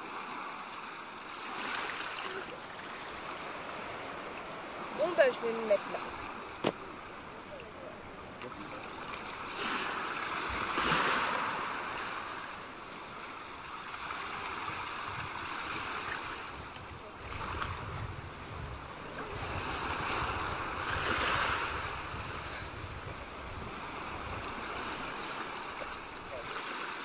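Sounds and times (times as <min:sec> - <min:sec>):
surf washing on shore: 0:00.0 - 0:27.0
wind rumble on microphone: 0:14.2 - 0:26.4.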